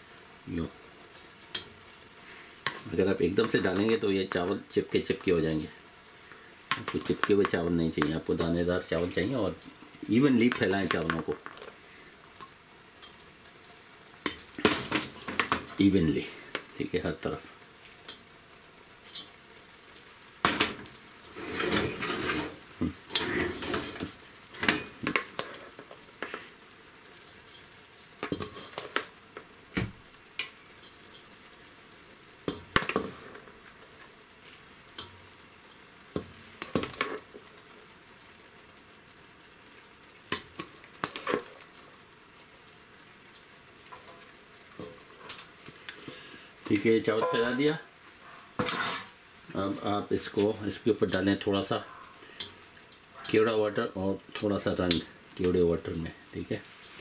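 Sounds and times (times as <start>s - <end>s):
spoon scraping a steel bowl: 21.4s - 24.0s.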